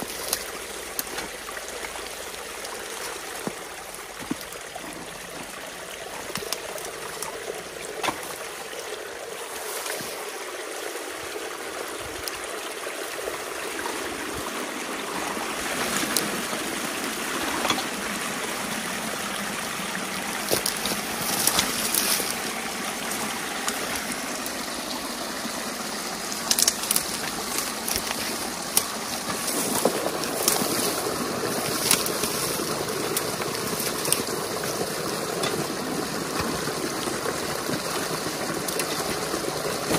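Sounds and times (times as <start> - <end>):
water rushing and gurgling: 0.0 - 39.9
rake knocking on sticks: 7.9 - 8.4, 20.4 - 22.5.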